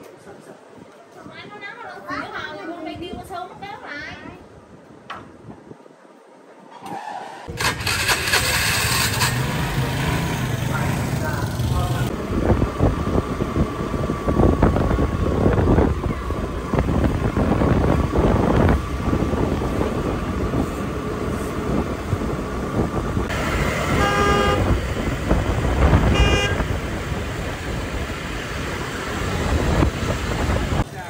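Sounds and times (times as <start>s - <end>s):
wind and road noise: 0.0s - 31.0s
scooter horn tooting: 23.6s - 24.8s, 25.9s - 26.8s.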